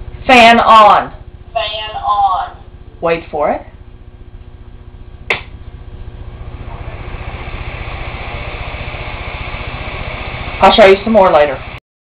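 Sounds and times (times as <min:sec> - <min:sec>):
electric fan rushing air: 0:00.0 - 0:11.8
switch click: 0:05.3 - 0:05.5.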